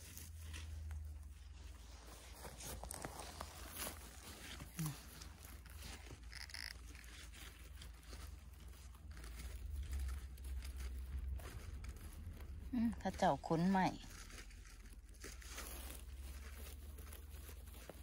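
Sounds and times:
rustling and crackling handling: 0.0s - 18.0s
low rumble: 8.7s - 13.8s.

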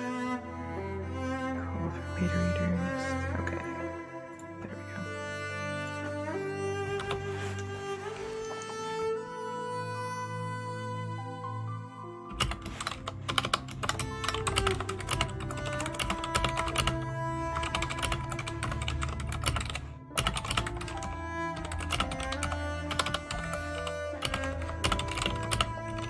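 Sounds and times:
cello music: 0.0s - 26.0s
rapid typing on keyboard: 12.4s - 26.0s.

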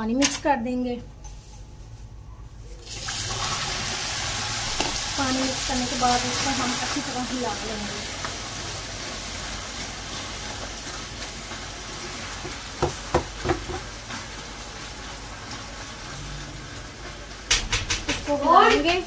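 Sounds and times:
sugar syrup sizzling: 2.8s - 17.6s.

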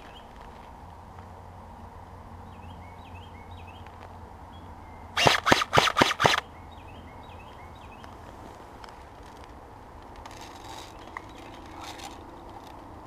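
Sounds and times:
small birds chirping: 0.0s - 0.4s, 2.4s - 8.3s
loud sharp noises: 5.2s - 6.4s.

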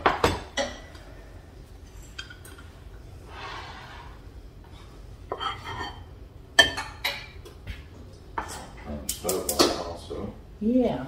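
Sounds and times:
cookware clinking: 0.0s - 1.0s, 5.3s - 7.5s
cookware sliding scrape: 3.3s - 6.0s.

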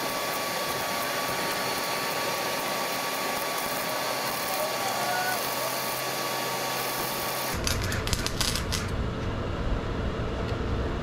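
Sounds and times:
welding arc crackling: 0.0s - 9.0s.

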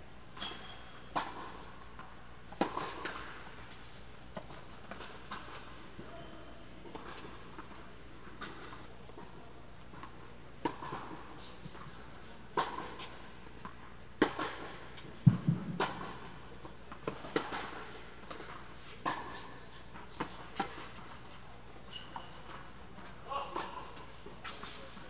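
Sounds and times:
tennis ball pops off rackets: 14.2s - 16.3s.

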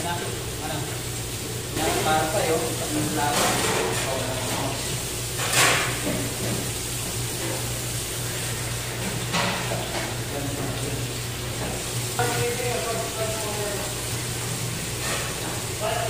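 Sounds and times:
fish rinsed under water: 0.0s - 16.0s
tap water pouring into metal sink: 0.0s - 16.0s.

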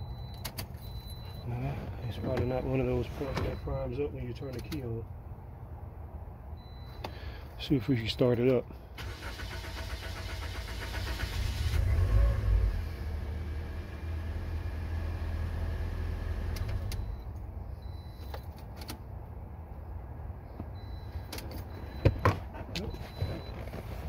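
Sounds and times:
car engine starting and idling: 8.9s - 19.1s.

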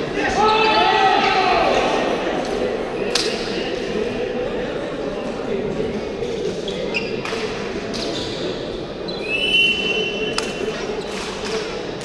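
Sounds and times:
echoing chatter of people: 0.0s - 12.0s
hand slapping a shuttlecock: 3.1s - 3.5s
sneaker squeaks on court: 6.7s - 7.3s.

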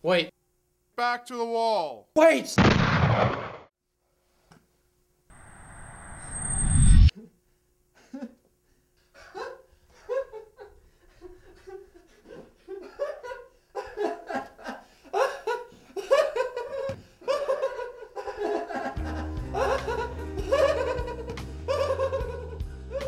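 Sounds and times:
man laughing: 8.0s - 8.5s, 9.1s - 23.0s.

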